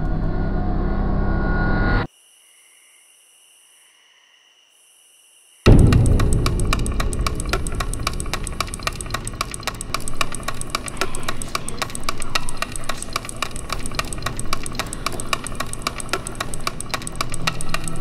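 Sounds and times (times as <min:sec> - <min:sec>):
fast even ticking: 0:05.7 - 0:18.0
low steady drone: 0:05.7 - 0:18.0.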